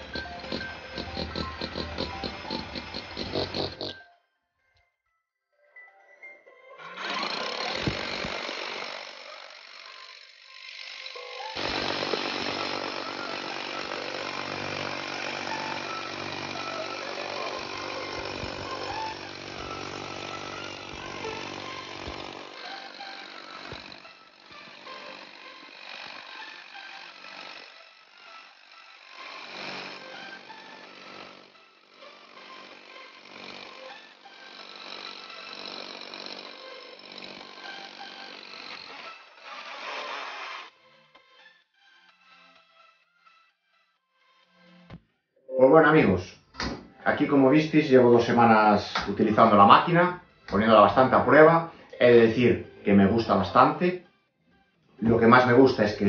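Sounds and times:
rotary hammer drilling into concrete: 0.0s - 4.0s, 6.8s - 40.7s.

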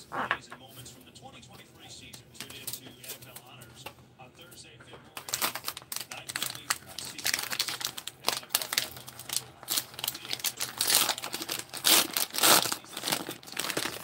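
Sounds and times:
card pack wrapper crinkling and tearing: 5.2s - 14.0s.

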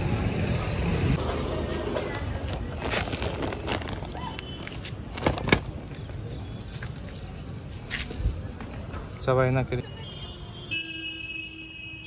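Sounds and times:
low outdoor background noise: 0.0s - 12.0s
plastic sack rustling: 2.3s - 5.6s.

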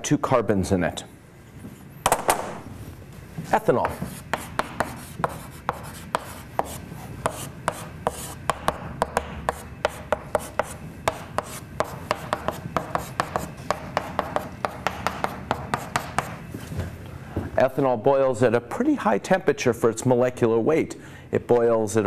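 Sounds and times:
chalk tapping and scraping on board: 3.8s - 16.4s.

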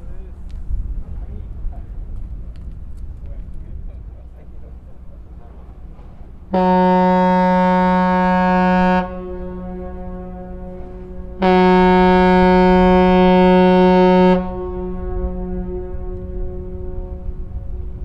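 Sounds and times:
ship's horn blasts: 5.6s - 18.0s.

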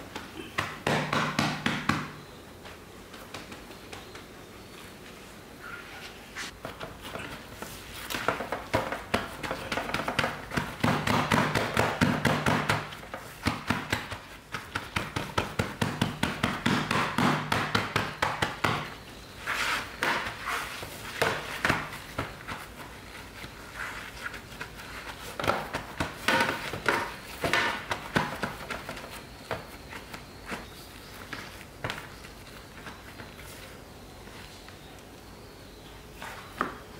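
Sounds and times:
hands patting mashed beans: 6.6s - 19.0s.

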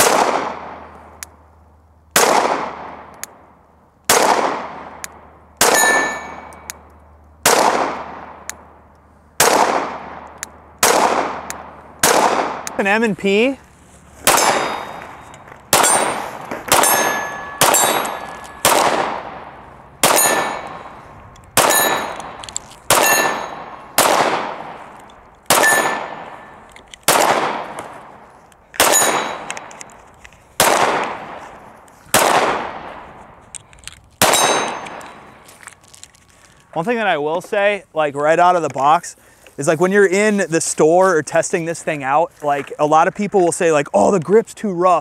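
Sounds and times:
pistol shots: 0.0s - 0.9s, 2.1s - 3.2s, 4.1s - 6.7s, 7.4s - 8.5s, 9.4s - 12.8s, 14.2s - 24.8s, 25.5s - 28.1s, 28.8s - 29.7s, 30.6s - 31.4s, 32.1s - 33.0s, 34.2s - 35.4s
metallic ring: 5.7s - 6.8s, 14.4s - 18.7s, 20.1s - 21.0s, 21.7s - 22.2s, 23.0s - 23.8s, 25.6s - 26.7s, 28.9s - 29.6s, 34.3s - 35.4s.

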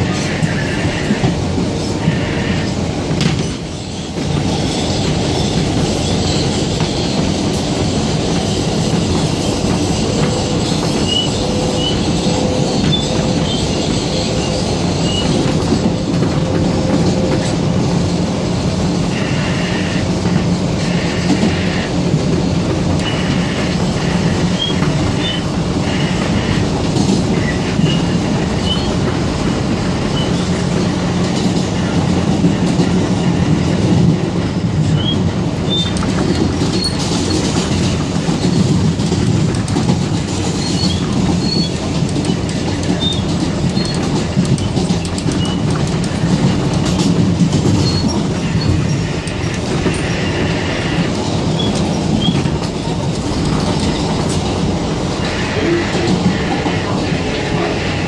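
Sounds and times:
subway car rumble: 0.0s - 58.0s
wheels clacking on rails: 0.0s - 58.0s
high wheel squeals: 3.8s - 17.4s, 23.0s - 26.6s, 27.3s - 29.1s, 30.0s - 30.6s, 34.9s - 37.5s, 40.4s - 45.7s, 47.8s - 52.5s.

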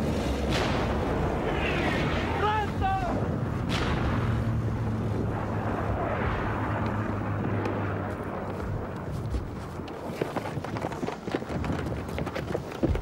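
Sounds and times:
shell explosion with rumble: 3.6s - 4.4s.

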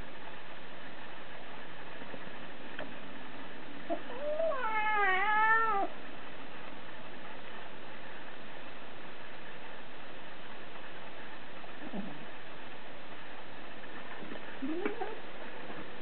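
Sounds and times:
kitten meowing: 4.1s - 5.9s.

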